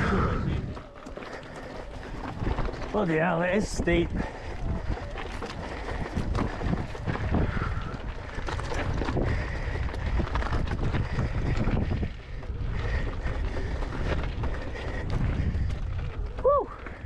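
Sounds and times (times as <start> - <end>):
wind rumbling on microphone: 0.0 - 17.0
bike knocks and rattles: 5.1 - 15.8.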